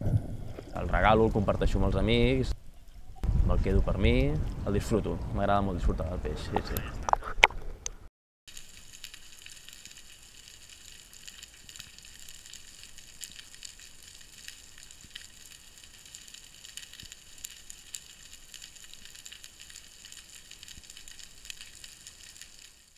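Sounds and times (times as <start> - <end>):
underwater crackle of clicks: 6.6 - 22.8.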